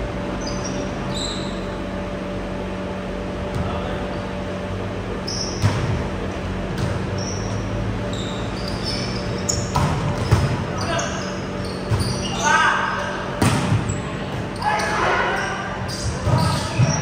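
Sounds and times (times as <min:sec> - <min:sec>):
hall hum: 0:00.0 - 0:12.3
short high shoe squeaks: 0:00.4 - 0:01.7, 0:07.1 - 0:12.8
volleyball hit: 0:13.4 - 0:13.9.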